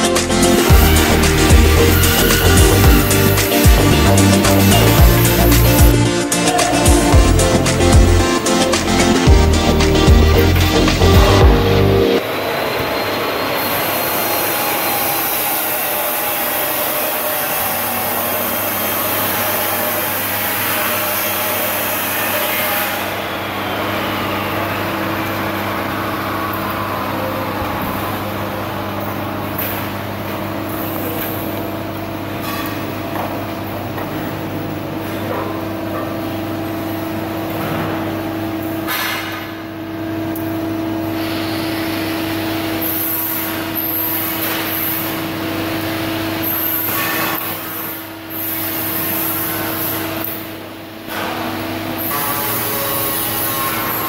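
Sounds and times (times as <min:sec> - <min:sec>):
welding machine humming: 0:00.0 - 0:11.6.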